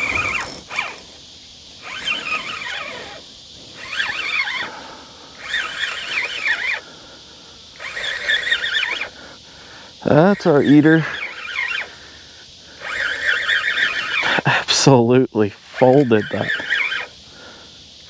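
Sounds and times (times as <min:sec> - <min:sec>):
fishing reel cranking whine: 0:00.0 - 0:07.0, 0:07.7 - 0:09.2, 0:10.0 - 0:12.1, 0:12.7 - 0:14.4, 0:15.6 - 0:17.2.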